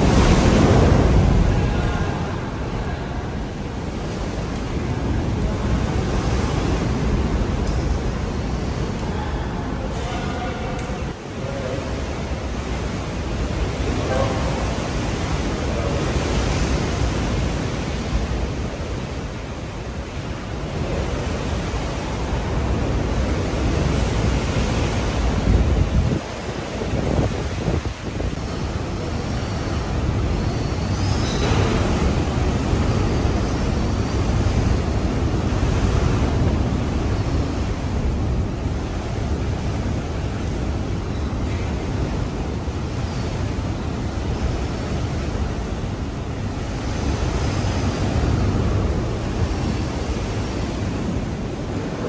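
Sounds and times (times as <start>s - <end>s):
rain battering windows: 0.0s - 17.3s
wind gusts: 0.0s - 52.0s.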